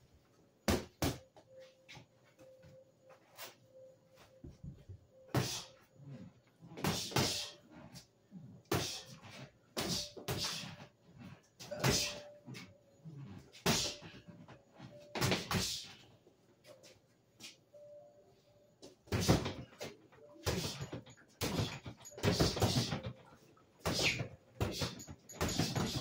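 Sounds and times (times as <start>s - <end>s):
punches hitting a punching bag: 6.8s - 7.6s, 11.7s - 12.2s, 19.1s - 19.6s, 21.4s - 23.1s, 23.8s - 26.0s.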